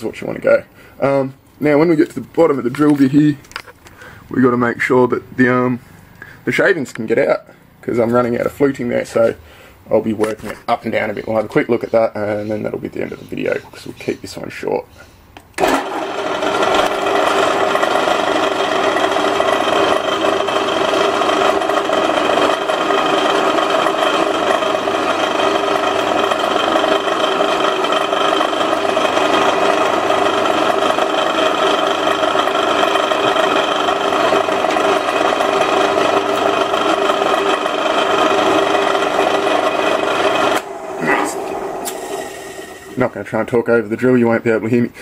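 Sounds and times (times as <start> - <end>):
drill bit drilling metal rod: 15.6 - 43.0
drill press humming: 15.6 - 43.1.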